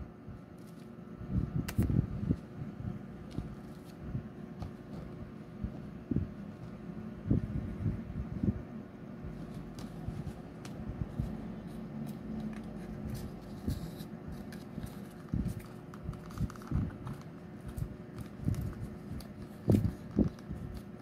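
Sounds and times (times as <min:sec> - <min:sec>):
stiff card rustling and tapping: 0:03.2 - 0:05.3, 0:09.3 - 0:21.0.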